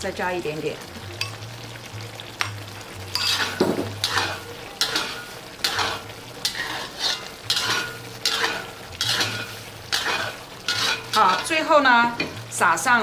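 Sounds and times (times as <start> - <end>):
metal spatula scraping a wok: 3.1 - 12.4.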